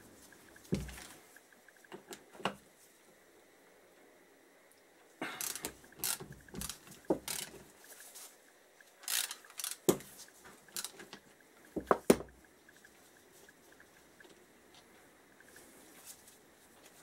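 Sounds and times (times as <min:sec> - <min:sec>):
ratchet clicking: 0:05.4 - 0:07.6, 0:09.0 - 0:10.0, 0:10.6 - 0:11.1.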